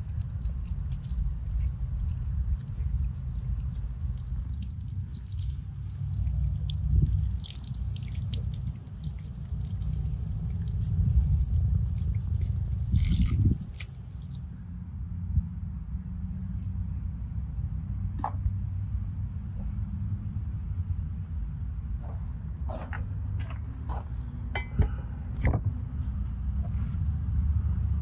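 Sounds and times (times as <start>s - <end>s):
water dripping: 0.0s - 14.5s
low steady rumble: 0.0s - 28.0s
water splash: 0.4s - 14.5s.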